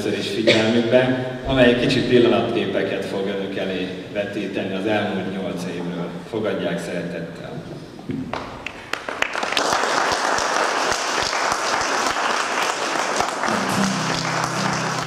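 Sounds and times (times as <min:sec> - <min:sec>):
audience applauding: 0:08.6 - 0:15.0
music: 0:13.4 - 0:15.0.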